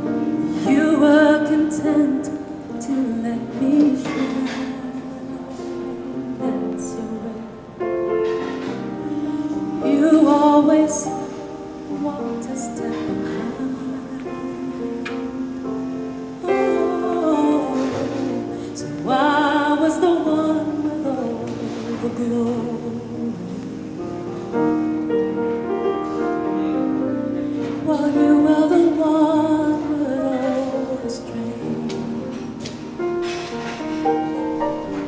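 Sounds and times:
woman singing slow song: 0.0 - 8.2, 8.8 - 24.7, 26.7 - 33.1.

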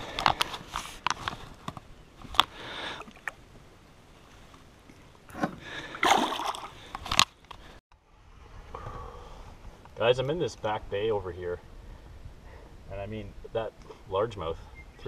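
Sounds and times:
fish splashing into water: 5.9 - 6.8.

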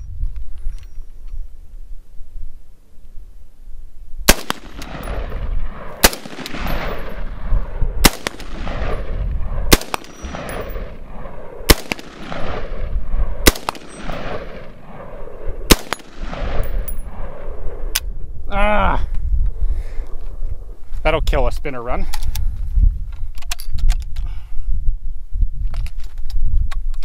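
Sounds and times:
rifle shots with long echo: 4.2 - 18.1.

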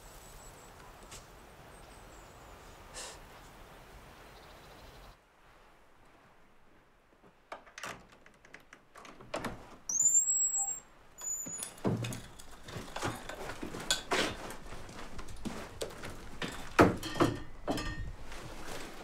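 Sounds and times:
door hinge squealing: 9.9 - 11.8
rustling: 11.2 - 19.0
knocks: 16.4 - 18.1.

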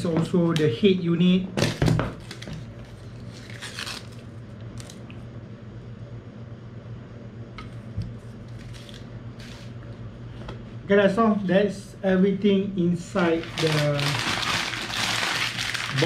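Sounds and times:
steady low hum: 0.0 - 16.0
paper crinkling and tearing: 2.2 - 5.0, 8.5 - 9.7, 13.4 - 16.0.

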